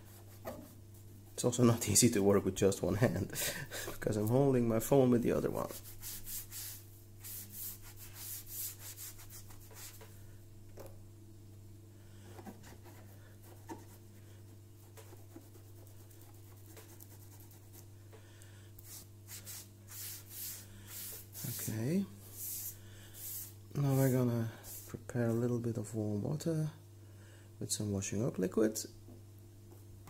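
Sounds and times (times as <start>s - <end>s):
wet sponge scrubbing: 5.4s - 10.1s, 14.7s - 17.9s, 18.8s - 25.0s.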